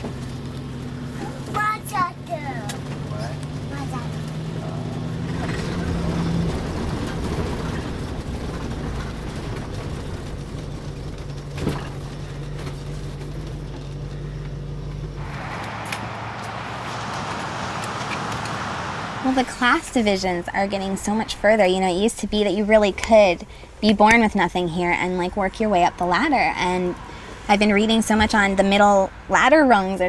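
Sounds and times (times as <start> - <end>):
vehicle engine running: 0.0 - 30.0
steady outdoor hiss: 14.6 - 30.0.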